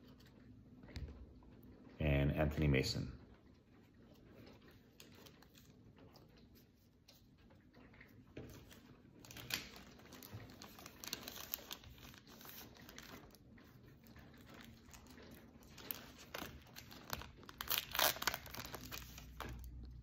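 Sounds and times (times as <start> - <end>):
foil wrapper crinkling: 8.7 - 13.4, 14.3 - 20.0.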